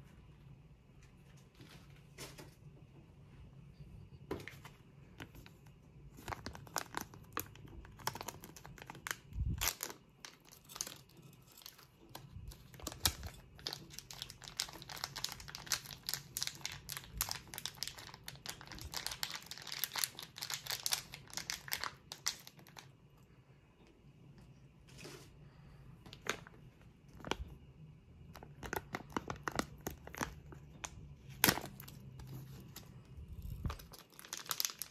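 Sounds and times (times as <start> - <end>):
plastic sachet crinkling: 5.2 - 22.9, 28.3 - 34.9.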